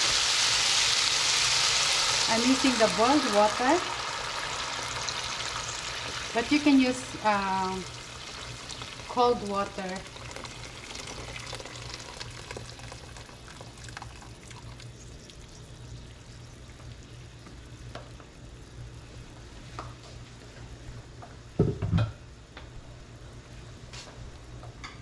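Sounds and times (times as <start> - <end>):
steady low hum: 0.0 - 25.0
water pouring into a pot: 10.0 - 15.5.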